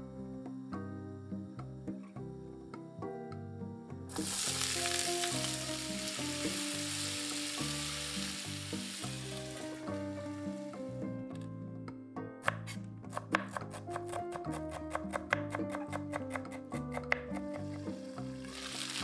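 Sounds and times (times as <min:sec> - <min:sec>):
soft background music: 0:00.0 - 0:19.0
potatoes sizzling in oil: 0:04.1 - 0:11.0, 0:17.6 - 0:19.0.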